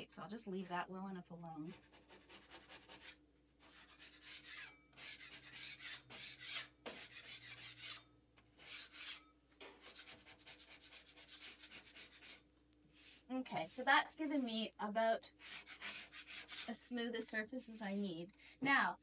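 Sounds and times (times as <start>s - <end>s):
metal scraper scraping wall: 1.7s - 12.4s.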